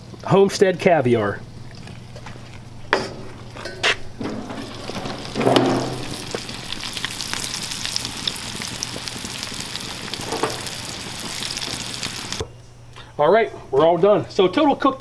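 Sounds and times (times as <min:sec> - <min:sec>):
food frying in hot oil: 0:04.4 - 0:12.4.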